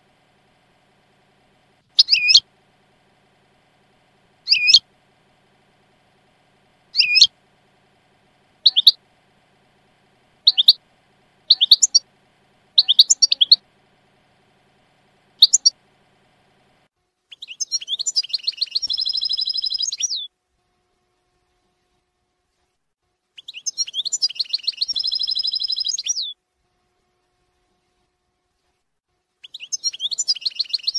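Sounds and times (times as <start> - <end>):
fast buzzy bird trill: 0.0 - 20.3, 23.4 - 26.4, 29.4 - 30.9
goldfinch chirping: 1.9 - 2.4, 4.4 - 4.8, 6.9 - 7.3, 8.6 - 9.0, 10.4 - 10.8, 11.4 - 12.0, 12.8 - 13.6, 15.4 - 15.8, 17.4 - 20.3, 23.4 - 26.3, 29.5 - 30.9.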